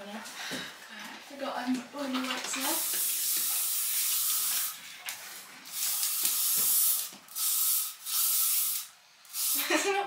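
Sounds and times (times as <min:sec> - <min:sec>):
aerosol spray hissing: 0:02.8 - 0:04.8, 0:05.7 - 0:09.8.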